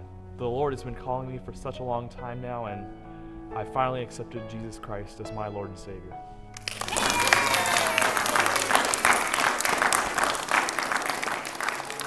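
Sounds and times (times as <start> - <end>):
crowd applauding: 6.6 - 12.0.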